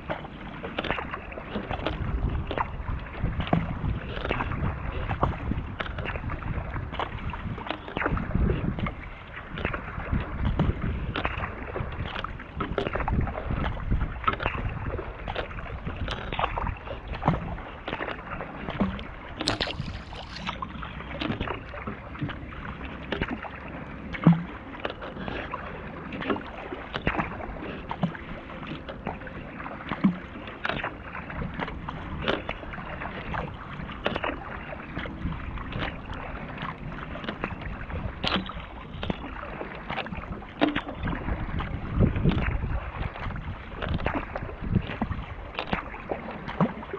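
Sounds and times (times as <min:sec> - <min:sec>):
paddle strokes splashing: 0:00.0 - 0:46.9
water running along hull: 0:00.0 - 0:46.9.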